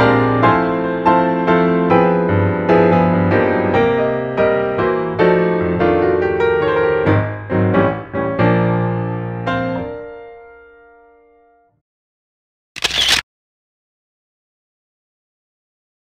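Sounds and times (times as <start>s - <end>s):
piano music: 0.0s - 11.7s.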